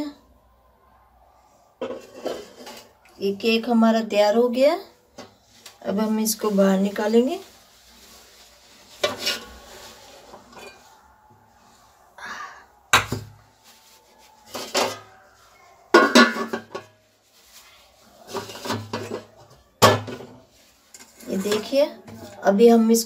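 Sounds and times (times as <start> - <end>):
metal pots clanking and scraping: 1.8 - 3.0, 8.0 - 11.0, 14.5 - 15.2, 15.9 - 17.0, 18.2 - 22.5.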